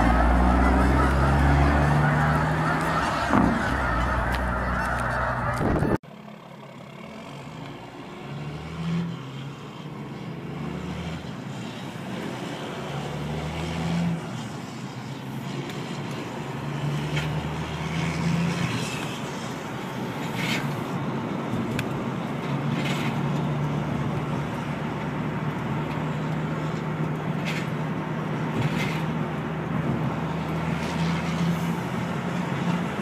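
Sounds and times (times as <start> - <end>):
truck diesel engine drone: 0.0 - 33.0.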